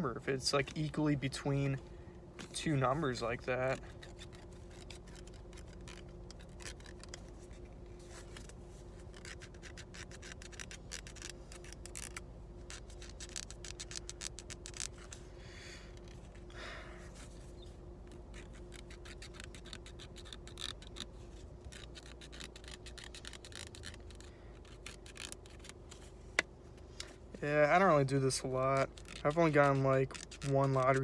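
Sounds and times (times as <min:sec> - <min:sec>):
scratching lottery tickets: 0:02.5 - 0:15.2, 0:18.1 - 0:26.1, 0:27.4 - 0:31.0.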